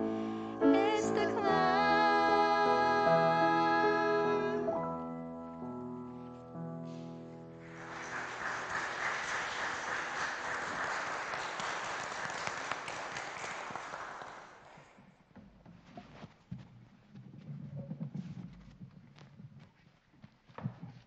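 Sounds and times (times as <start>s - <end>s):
people applauding: 7.6s - 14.8s.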